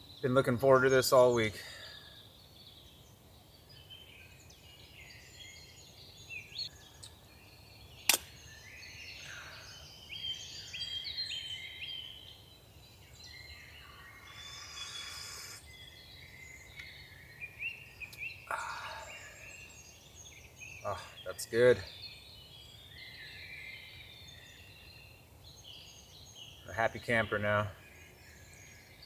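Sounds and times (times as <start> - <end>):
songbirds chirping and trilling: 0.0 - 29.0
sharp click: 8.1 - 8.3.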